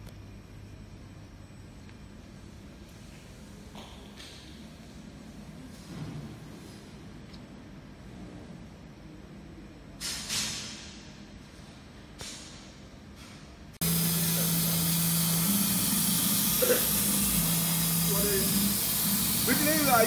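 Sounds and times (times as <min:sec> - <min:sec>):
low machine hum: 0:00.0 - 0:10.0, 0:11.0 - 0:20.0
laser cutter gas hiss: 0:13.8 - 0:20.0.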